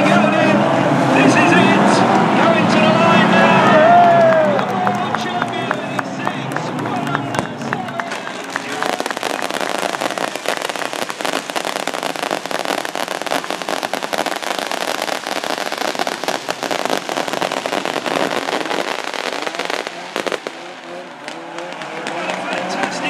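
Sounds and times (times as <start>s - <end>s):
fireworks crackling and popping: 5.2s - 23.0s.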